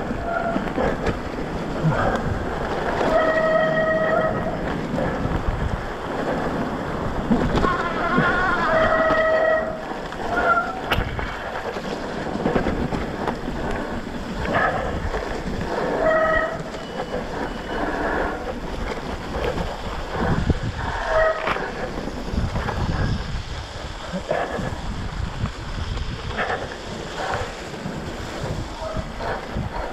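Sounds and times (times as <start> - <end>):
wind: 0.0 - 29.9
bike disc brakes squealing: 3.0 - 4.7, 7.7 - 10.9, 15.8 - 18.4.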